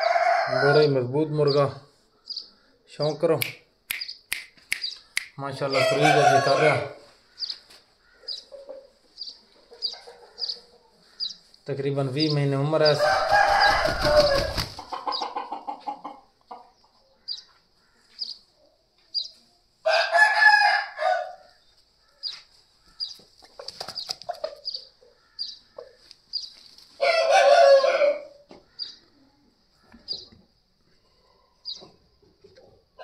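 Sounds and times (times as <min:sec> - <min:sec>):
rooster crowing: 0:00.0 - 0:01.0, 0:05.7 - 0:07.1, 0:13.0 - 0:14.7, 0:19.8 - 0:21.5, 0:27.0 - 0:28.4.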